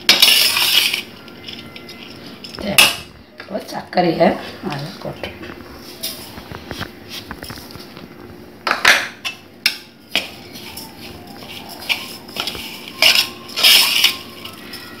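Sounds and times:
spoon scraping a metal bowl: 0.1 - 2.2, 10.1 - 15.0.

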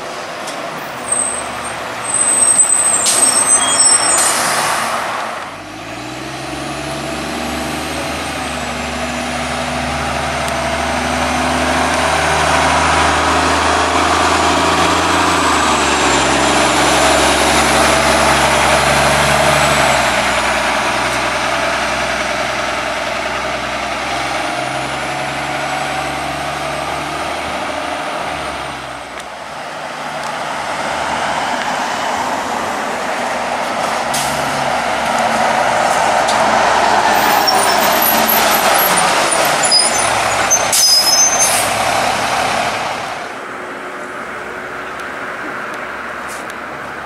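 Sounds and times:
bus engine hum: 0.0 - 47.0
bus tyre noise: 0.0 - 47.0
high squeaks: 1.0 - 4.6, 37.1 - 41.8.

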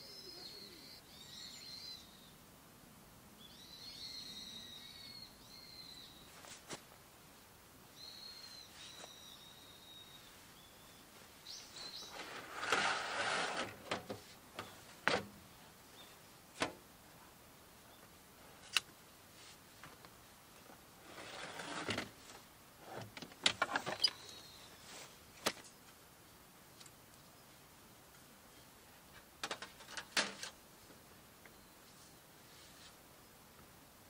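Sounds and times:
metal table scraping: 12.1 - 14.0, 21.0 - 22.0.

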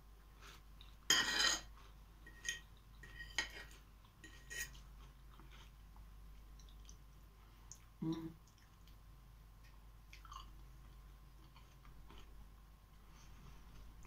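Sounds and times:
fork scraping a plate: 1.1 - 4.8.

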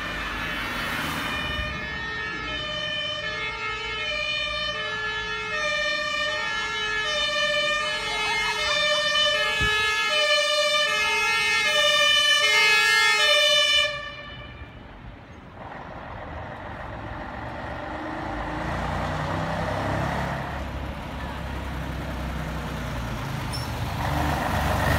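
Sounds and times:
two-tone fire truck siren: 0.0 - 14.8
truck engine and tyres: 0.0 - 24.9.

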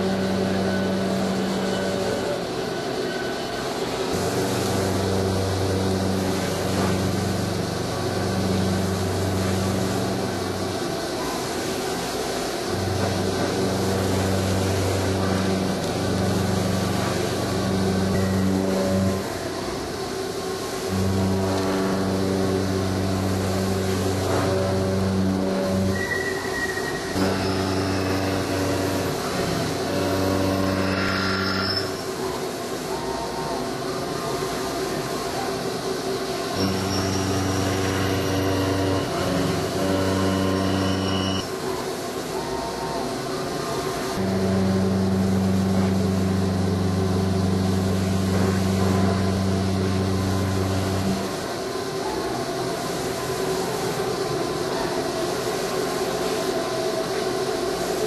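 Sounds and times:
milling machine cutting hum: 0.0 - 2.5, 4.0 - 11.2, 12.4 - 26.1, 27.1 - 32.1, 36.0 - 41.5, 44.2 - 51.7.

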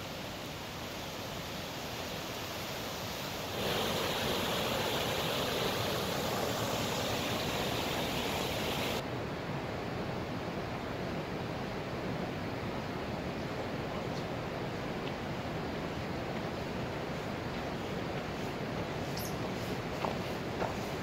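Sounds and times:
rushing whitewater stream: 0.0 - 9.1.

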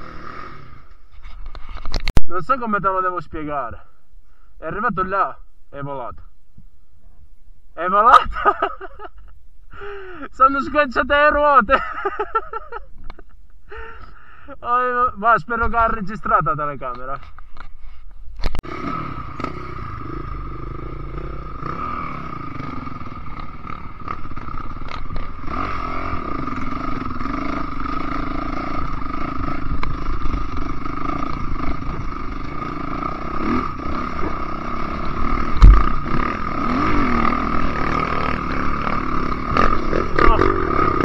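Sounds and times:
motorcycle engine revving: 0.0 - 1.1, 18.6 - 41.0
trail clatter and scraping: 0.0 - 2.2, 21.6 - 41.0
bike hitting a bump: 35.5 - 36.2.

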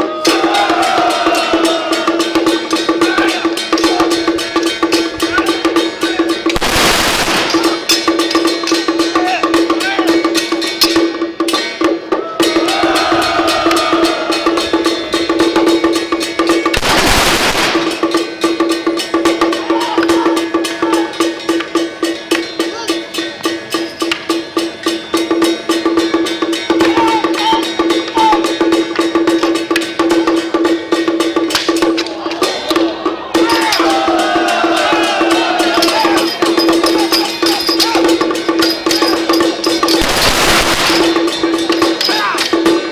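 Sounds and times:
cymbal beating: 0.2 - 32.0, 33.4 - 42.9
fast drum beating: 0.3 - 10.4, 12.4 - 21.1, 32.7 - 42.9
loud cymbal crash: 6.6 - 8.1, 16.6 - 18.7, 39.9 - 41.7
ringing metal tone: 35.8 - 42.5.

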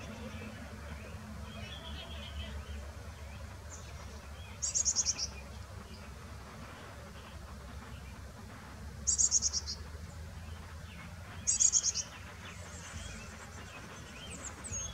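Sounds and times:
chickadee calls: 0.0 - 6.1, 9.1 - 9.8, 10.5 - 14.9.

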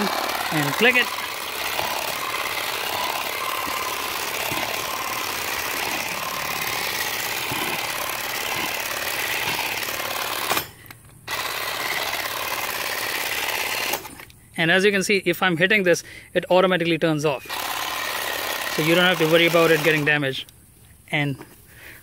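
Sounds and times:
blade clipping grass: 0.0 - 14.3, 17.5 - 20.2
cordless grass shear buzzing: 0.0 - 14.4, 17.4 - 20.5.

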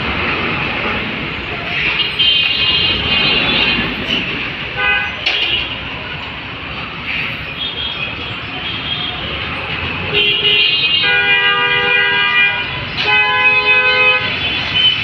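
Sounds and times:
city traffic noise: 0.0 - 15.0
vehicle horns honking: 4.7 - 5.8, 10.1 - 15.0.

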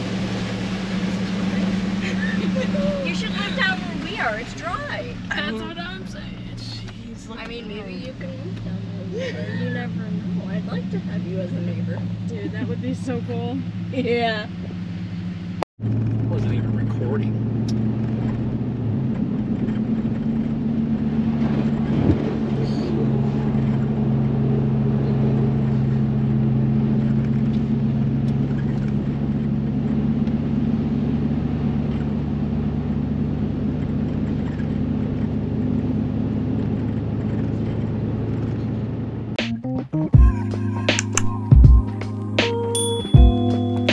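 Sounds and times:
car engine droning: 0.0 - 43.9.

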